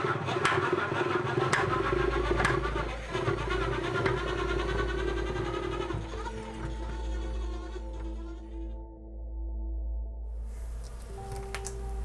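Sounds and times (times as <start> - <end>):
electric drill motor whirring: 0.0 - 8.6.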